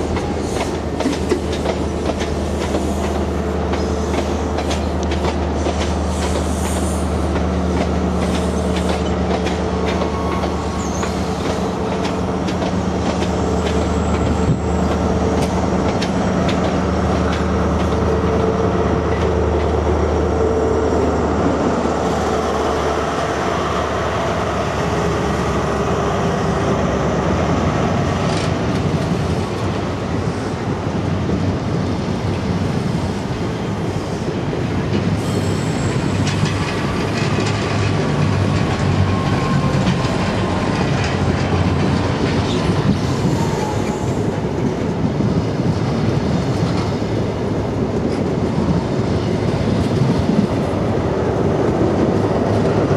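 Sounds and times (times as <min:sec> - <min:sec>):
train wheels clicking over rail joints: 0:00.0 - 0:19.9, 0:34.2 - 0:52.9.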